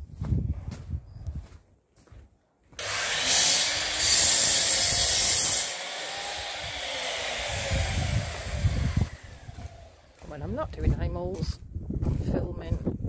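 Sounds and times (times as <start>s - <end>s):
power tool cutting wood: 2.8s - 10.3s.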